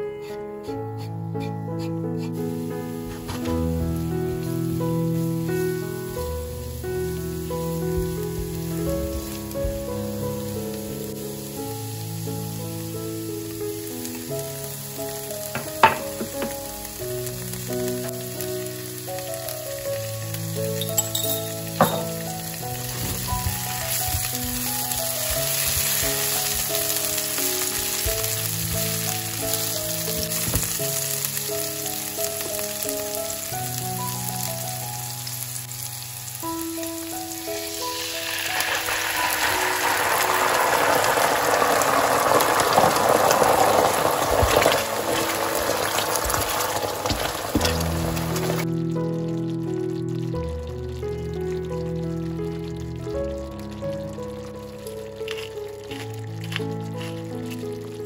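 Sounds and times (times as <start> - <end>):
soft background music: 0.0 - 40.4, 46.1 - 58.0
garlic sizzling in oil: 0.0 - 58.0
tomatoes poured into hot oil: 0.2 - 58.0.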